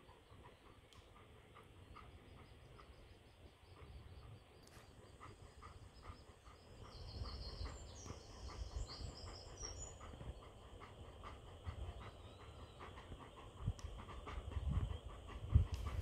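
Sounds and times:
dog panting: 0.0 - 16.0
wind buffeting microphone: 3.8 - 16.0.

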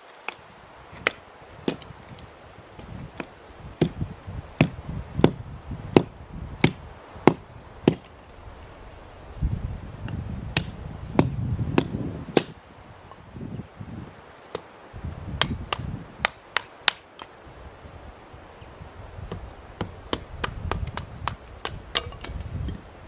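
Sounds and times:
hatchet splitting kindling: 19.8 - 22.5.

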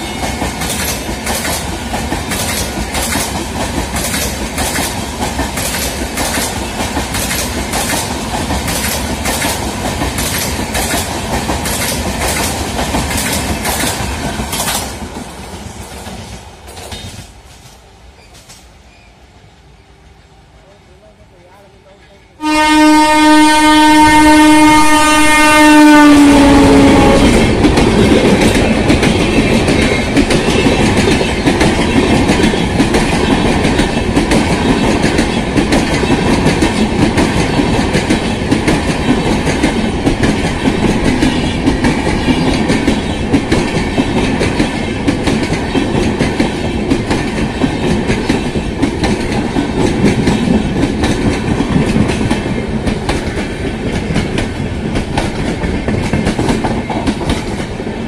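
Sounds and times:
train rumbling and clacking past: 0.0 - 58.0
train horn blast: 22.4 - 27.4.

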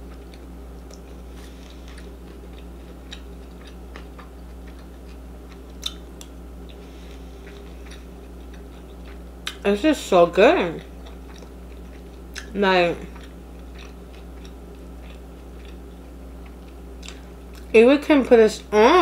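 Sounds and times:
low electrical hum: 0.0 - 19.0
chewing mouth clicks and smacks: 1.7 - 6.8, 13.1 - 15.8.

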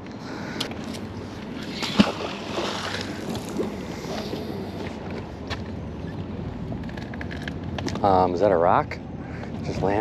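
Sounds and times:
magnet splashing into water: 1.7 - 3.7.

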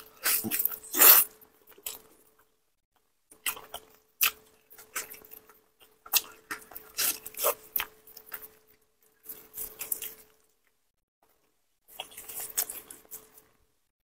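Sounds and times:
person chewing and sucking: 3.4 - 10.3, 11.9 - 13.4.

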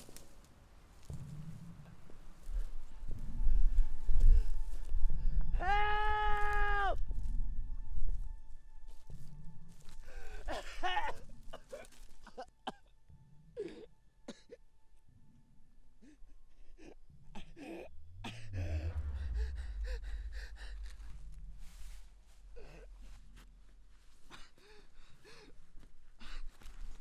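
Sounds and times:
low steady rumble: 17.3 - 24.3.

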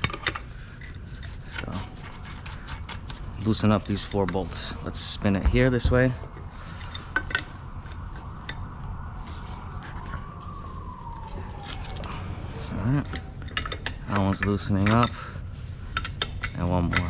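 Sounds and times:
wrench clicking on metal bolts: 0.0 - 0.9, 16.0 - 17.0
steady low hum: 0.0 - 17.0.

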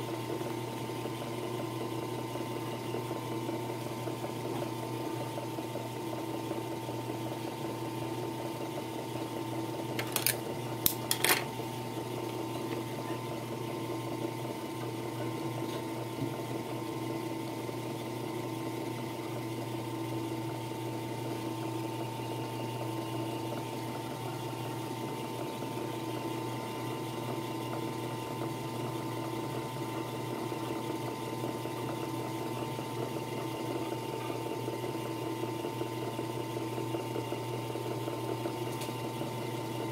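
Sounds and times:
sewing machine motor hum: 0.0 - 39.9.

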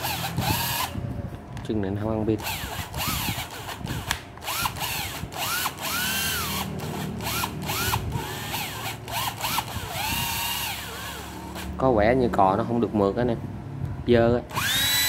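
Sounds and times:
cordless impact driver whining: 0.0 - 1.0, 2.4 - 11.8, 14.5 - 15.0.

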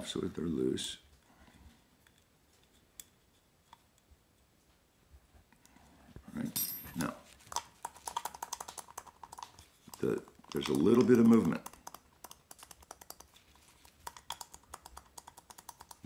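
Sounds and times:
coffee grinder parts clicking: 7.5 - 13.3.

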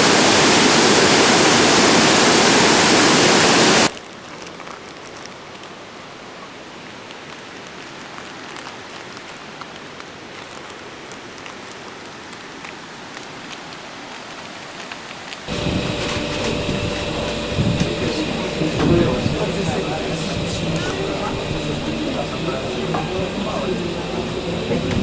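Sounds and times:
loud humming sound: 0.0 - 3.9, 15.5 - 25.0
water dripping and splashing: 6.8 - 17.9.

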